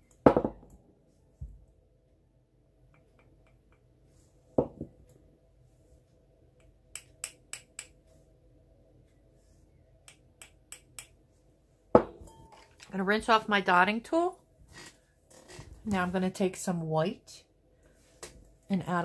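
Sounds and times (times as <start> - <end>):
dotting tool tapping glass and plastic: 6.9 - 8.0, 10.1 - 11.1.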